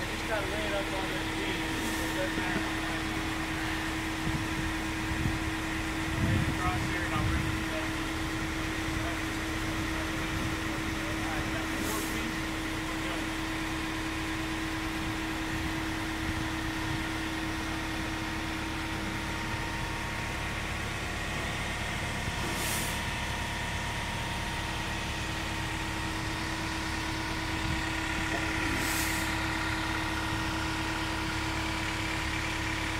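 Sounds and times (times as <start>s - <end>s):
short hisses: 22.4s - 23.0s, 28.7s - 29.3s.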